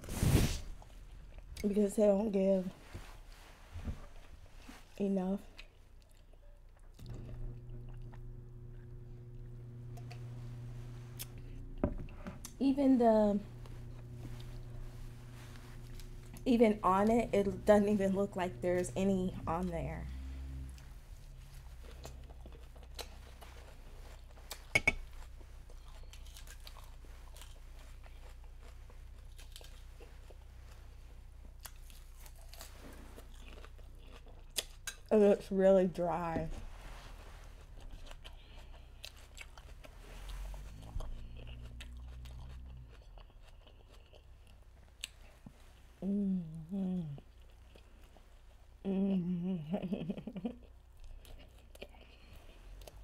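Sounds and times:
steady low hum: 0.0 - 53.0
lettuce crunching while chewing: 13.5 - 17.0, 21.6 - 35.1, 37.5 - 45.5, 50.5 - 53.0.

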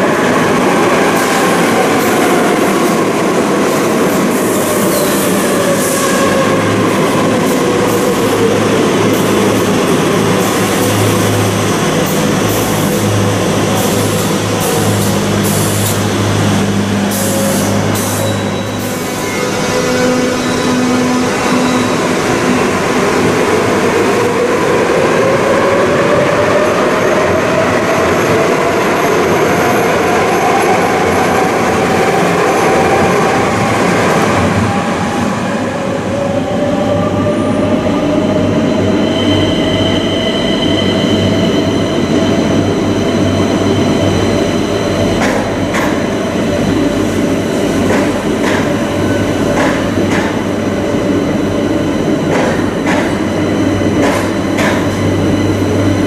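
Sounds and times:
train running in: 0.0 - 56.0.

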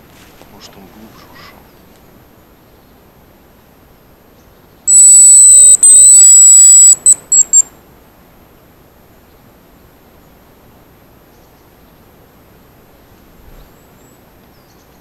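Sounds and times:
loud high decoy whistle: 4.9 - 7.6.

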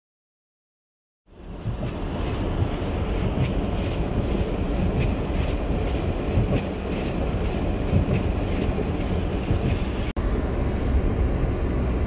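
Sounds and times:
gale wind buffeting van: 1.3 - 12.0.

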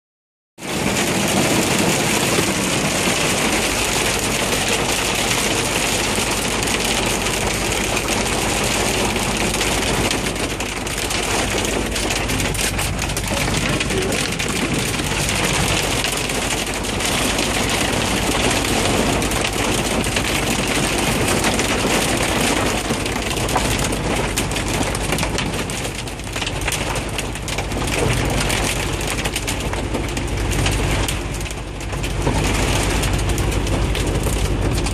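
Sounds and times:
rain and hail on a vehicle roof: 0.6 - 34.9
truck engine idling: 0.8 - 20.1.

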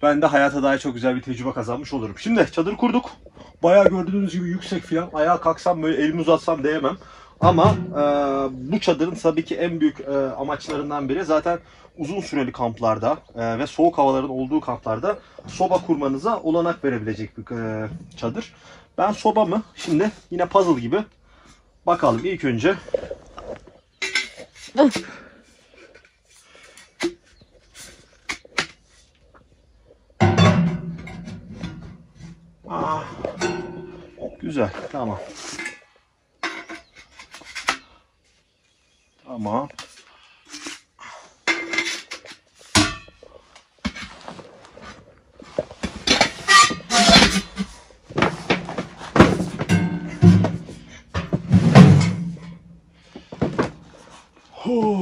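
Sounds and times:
metal pipes clanking: 7.4 - 9.3, 23.9 - 25.2, 30.2 - 37.9, 39.8 - 44.2, 46.0 - 52.8.

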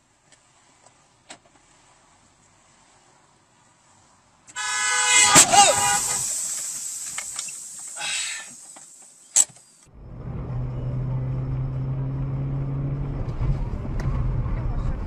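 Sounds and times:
car engine hum: 0.0 - 15.0
sharp click: 8.7 - 9.9.

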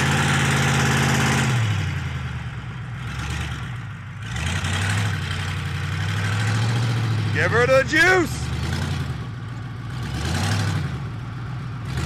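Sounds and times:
pickup truck engine revving hard: 0.0 - 2.1, 3.0 - 9.2, 9.9 - 11.1.

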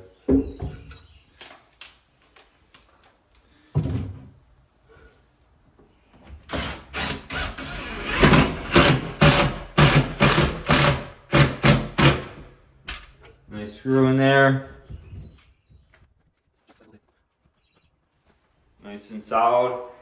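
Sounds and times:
cordless drill driving a screw: 6.5 - 12.2.

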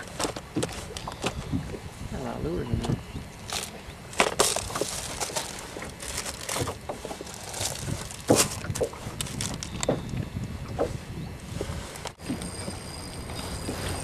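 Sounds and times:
lures rattling in plastic box: 0.0 - 1.5, 3.5 - 9.8.

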